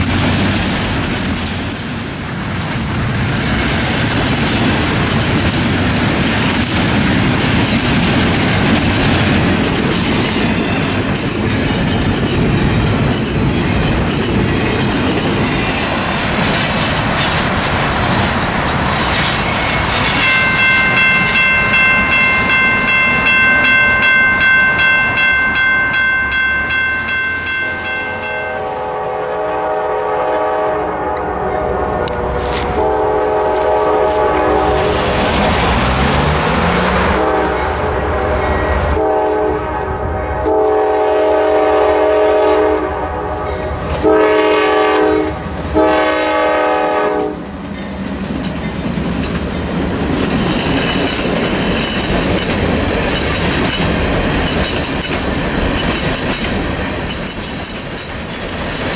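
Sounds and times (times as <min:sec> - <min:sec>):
train rumbling past: 0:00.0 - 0:58.9
crossing bell ringing: 0:19.3 - 0:29.2, 0:31.3 - 0:39.4
locomotive air horn blasts: 0:28.5 - 0:35.9, 0:36.5 - 0:47.5.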